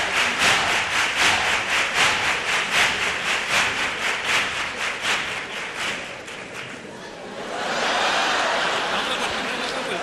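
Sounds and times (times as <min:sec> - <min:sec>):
audience clapping in unison: 0:00.0 - 0:06.9.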